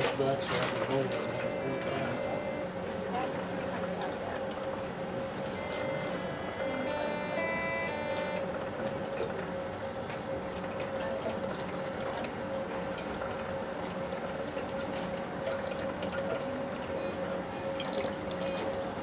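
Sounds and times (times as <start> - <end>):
watery pumping noise: 0.0 - 19.0
machine humming: 0.6 - 11.6.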